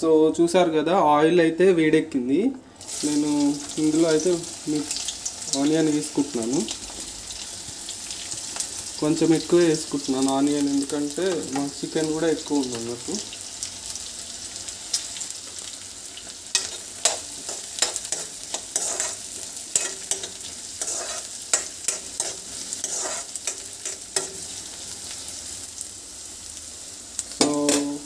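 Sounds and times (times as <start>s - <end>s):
onions sizzling in hot oil: 2.8s - 28.0s
spatula scraping metal pan: 16.5s - 24.7s.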